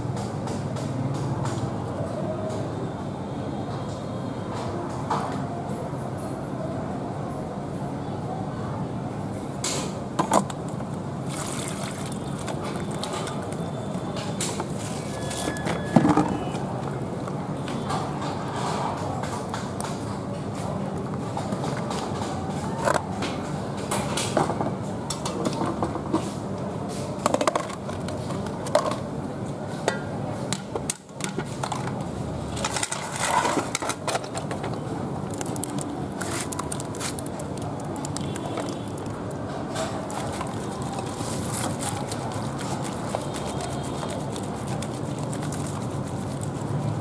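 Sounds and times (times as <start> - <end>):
water sloshing: 11.2 - 13.6
snail shells clattering: 32.6 - 47.0
snails rattling in plastic colander: 35.2 - 39.3, 40.0 - 47.0.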